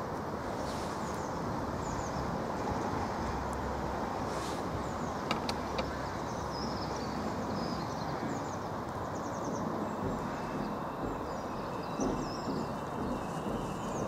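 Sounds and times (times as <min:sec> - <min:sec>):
train wheels and traction rumble: 0:00.0 - 0:14.0
sharp clicks: 0:05.2 - 0:06.0.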